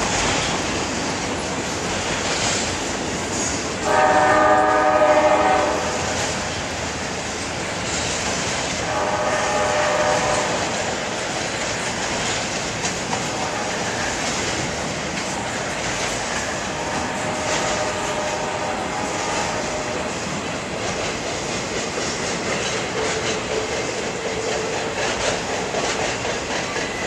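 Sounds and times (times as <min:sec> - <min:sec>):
train cars rolling across bridge: 0:00.0 - 0:27.0
locomotive horn: 0:03.8 - 0:06.3, 0:08.8 - 0:10.9, 0:13.3 - 0:13.9, 0:16.5 - 0:20.2.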